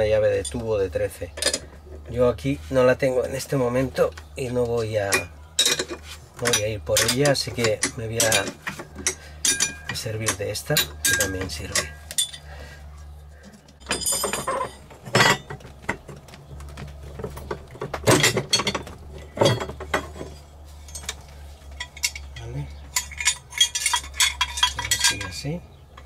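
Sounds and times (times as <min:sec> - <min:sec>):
wrench clinking on metal bolt: 0:05.0 - 0:12.5, 0:13.8 - 0:15.5, 0:21.8 - 0:25.4.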